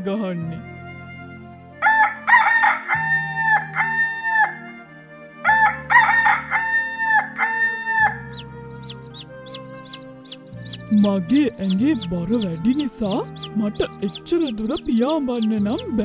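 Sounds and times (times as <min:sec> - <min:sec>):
soft background music: 0:00.0 - 0:16.0
rooster crowing: 0:01.8 - 0:04.6, 0:05.4 - 0:10.0.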